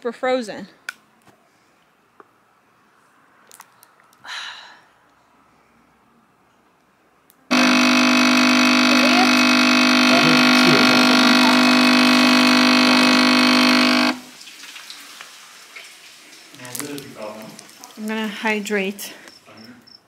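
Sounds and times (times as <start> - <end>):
espresso machine pump buzzing: 7.5 - 14.3.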